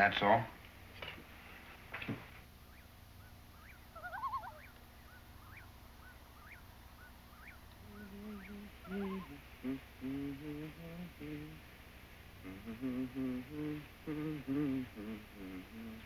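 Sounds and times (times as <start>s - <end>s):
birds chirping: 0.6s - 16.0s
bird warbling call: 2.6s - 9.5s.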